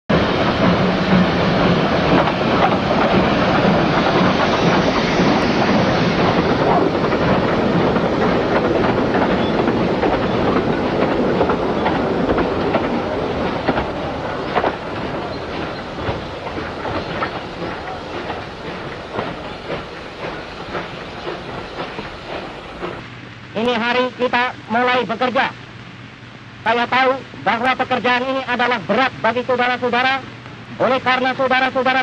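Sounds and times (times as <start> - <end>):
wheels clattering over rails: 0.1 - 23.0
steam train rushing: 0.1 - 23.2.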